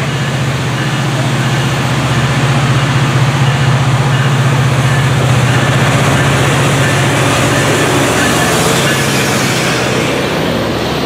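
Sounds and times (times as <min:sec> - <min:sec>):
diesel locomotive engine drone: 0:00.0 - 0:11.0
wheels rumbling on rail: 0:00.0 - 0:11.0.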